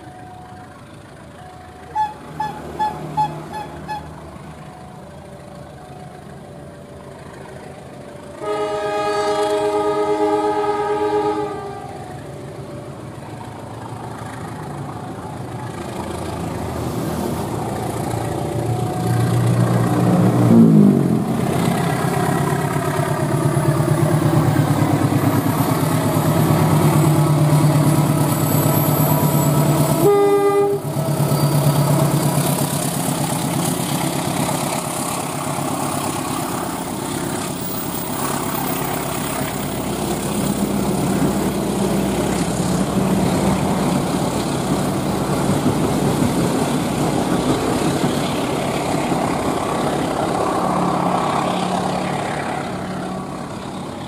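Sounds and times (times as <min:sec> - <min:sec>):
train engine drone passing: 0:00.0 - 0:54.0
train horn blast: 0:08.4 - 0:12.0, 0:28.5 - 0:31.4.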